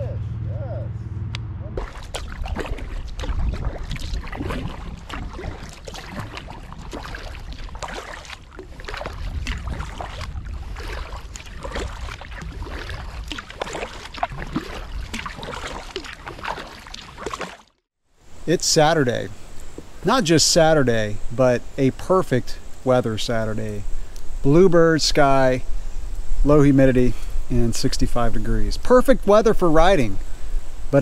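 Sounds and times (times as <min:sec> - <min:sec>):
steady low rumble: 0:00.0 - 0:15.5
paddle splashing in water: 0:01.8 - 0:17.8.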